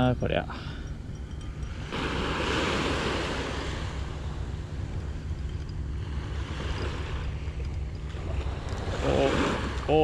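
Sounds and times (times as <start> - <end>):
wind rumble on microphone: 0.8 - 10.0
small waves washing on sand: 1.7 - 4.7, 6.0 - 10.0.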